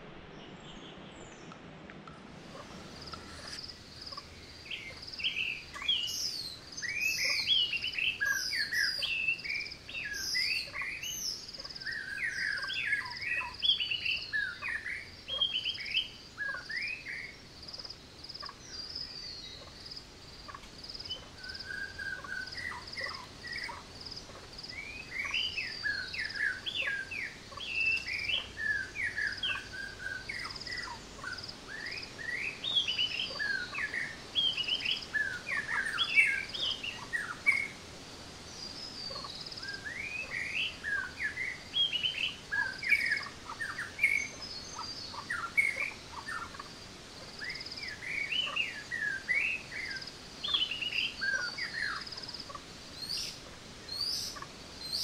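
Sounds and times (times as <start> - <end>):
insect pulsing call: 2.3 - 55.0
birds chirping and whistling: 2.6 - 17.1, 24.8 - 37.7.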